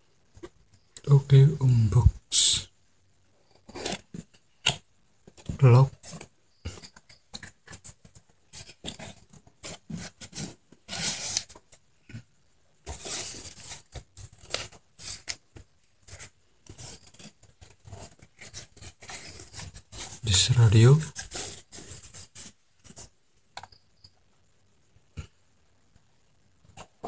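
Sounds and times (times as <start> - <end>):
cardboard box being handled: 5.4 - 11.6, 12.8 - 20.2.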